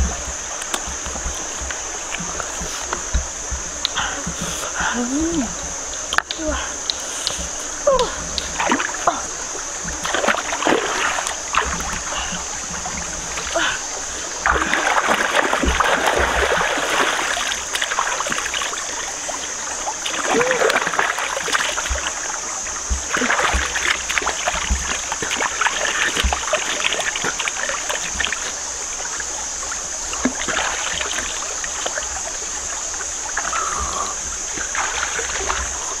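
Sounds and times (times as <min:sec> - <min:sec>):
water trickling: 0:00.0 - 0:36.0
hands splashing water: 0:22.9 - 0:28.4.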